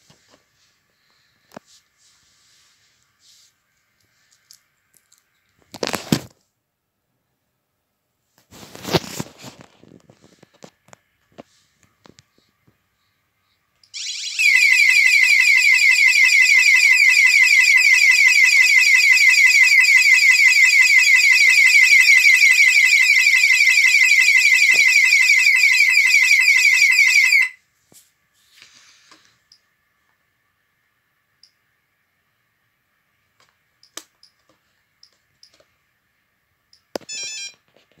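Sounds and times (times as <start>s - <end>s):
alarm sounder electronic warble: 13.9s - 27.6s.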